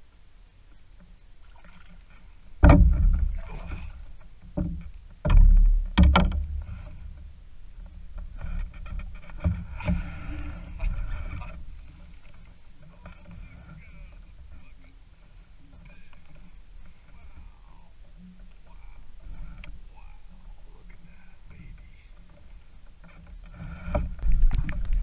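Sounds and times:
knocks against a canoe: 0:01.6 - 0:14.7.

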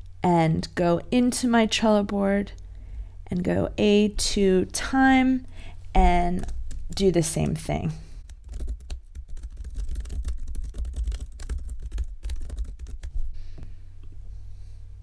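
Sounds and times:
low steady hum: 0:00.0 - 0:15.0
typing on computer keyboard: 0:08.2 - 0:13.1.

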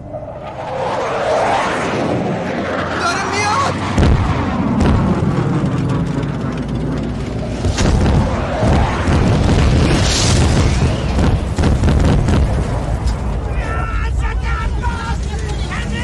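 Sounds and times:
heavy low rumble: 0:00.0 - 0:16.0
explosion blasts: 0:03.8 - 0:13.6.

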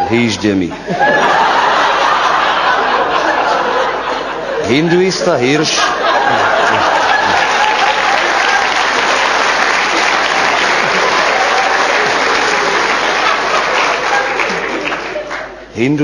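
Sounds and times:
audience applauding: 0:06.2 - 0:15.7.

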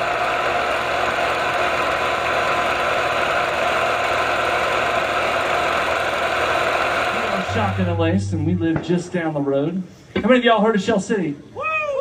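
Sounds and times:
film projector whirring: 0:00.0 - 0:08.1.

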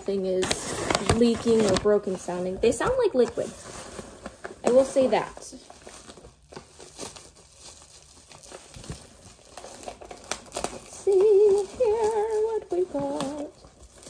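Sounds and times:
cardboard and packing rustling: 0:00.0 - 0:14.0
person humming: 0:11.0 - 0:13.5.

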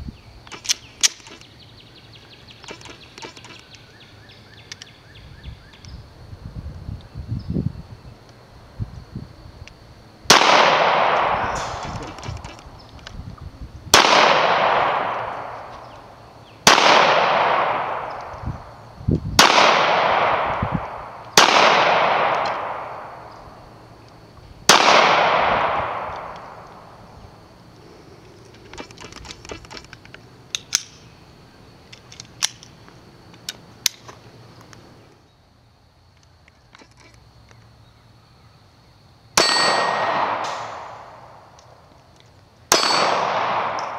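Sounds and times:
pistol shots echoing: 0:10.3 - 0:12.6, 0:13.9 - 0:18.3, 0:19.4 - 0:23.4, 0:24.7 - 0:27.0, 0:39.4 - 0:41.6, 0:42.7 - 0:43.9.

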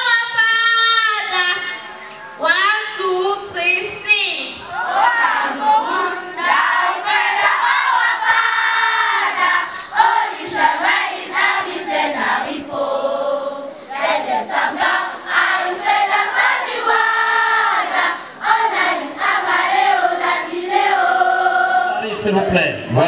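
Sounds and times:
choir singing: 0:04.6 - 0:22.7.

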